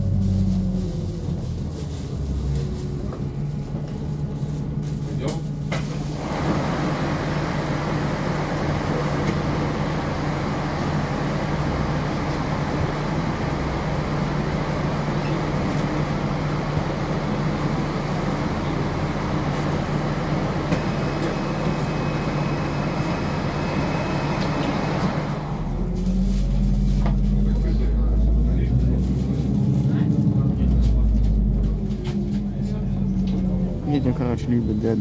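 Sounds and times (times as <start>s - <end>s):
bus cabin noise: 0.0s - 35.0s
bus engine idling: 0.0s - 35.0s.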